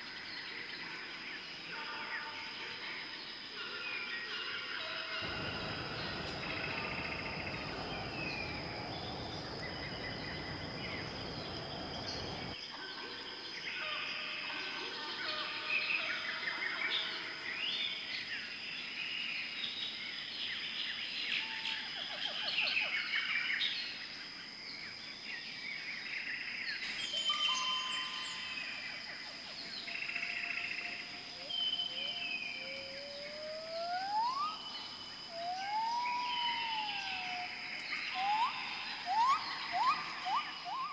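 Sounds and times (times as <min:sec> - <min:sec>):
low rushing noise: 0:05.2 - 0:12.6
small birds chirping and trilling: 0:05.2 - 0:12.6
steady high whine: 0:05.2 - 0:12.6.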